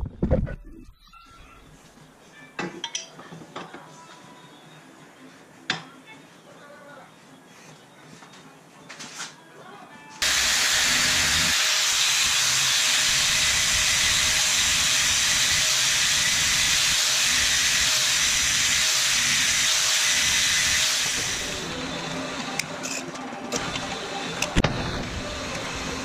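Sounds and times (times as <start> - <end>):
angle grinder grinding steel: 10.2 - 26.0.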